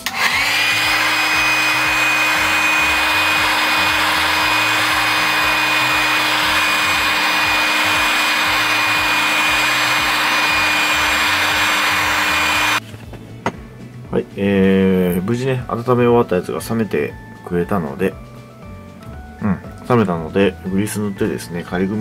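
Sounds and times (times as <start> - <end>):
heat gun fan hiss and whine: 0.0 - 12.8.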